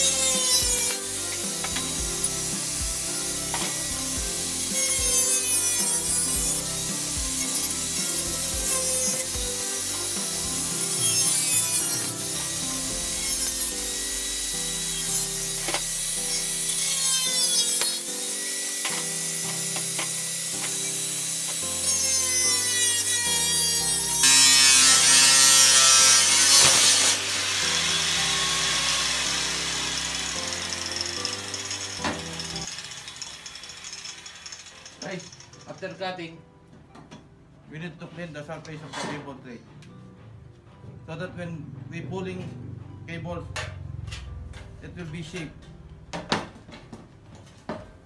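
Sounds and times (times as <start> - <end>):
angle grinder cutting metal: 0.0 - 36.0
background music: 0.0 - 48.0.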